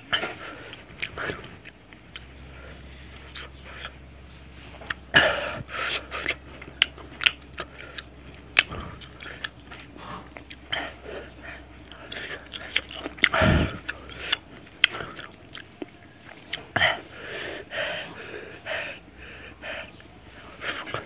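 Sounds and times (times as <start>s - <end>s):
chewing and crunching: 0.0s - 21.0s
breathy hisses: 2.3s - 15.3s, 16.0s - 21.0s
wet mouth clicks: 11.8s - 17.0s.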